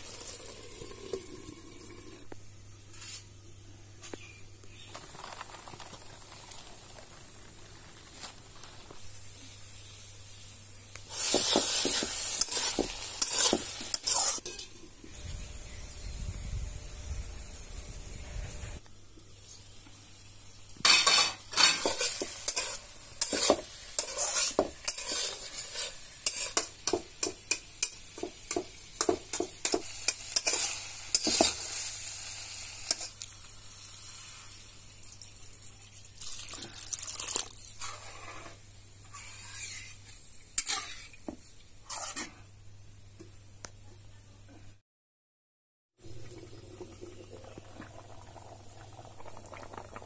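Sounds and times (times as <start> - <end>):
food sizzling: 0.0 - 3.2, 4.8 - 42.5, 46.0 - 50.0
metal spoon scraping a pan: 11.2 - 14.8, 20.8 - 31.9, 37.8 - 41.2, 41.8 - 42.5.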